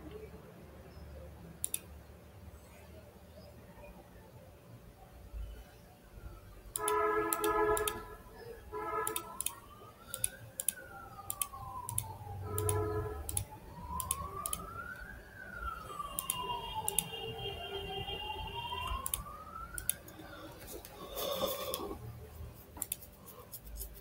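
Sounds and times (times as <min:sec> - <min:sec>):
mouse clicks: 0:01.6 - 0:01.9, 0:06.7 - 0:08.0, 0:09.0 - 0:14.6, 0:16.2 - 0:17.1, 0:18.9 - 0:20.2, 0:22.7 - 0:23.1
siren wailing: 0:05.5 - 0:22.3.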